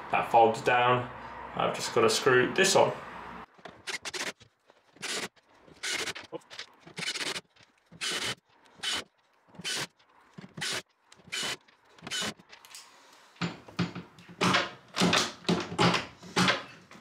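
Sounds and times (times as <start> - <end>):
screwdriver scraping screws: 3.6 - 12.8
knocking and handling noise: 13.4 - 17.0.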